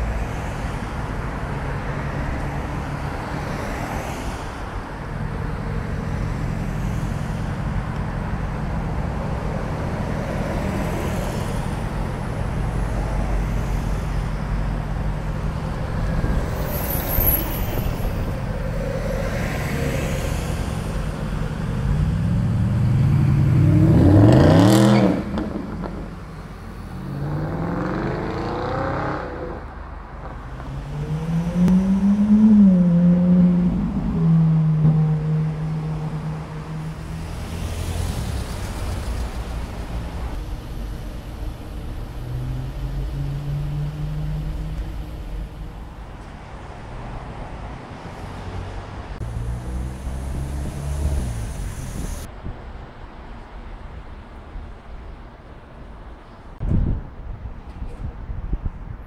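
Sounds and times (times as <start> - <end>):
city traffic: 0.0 - 59.0
car engine revving: 30.5 - 39.5.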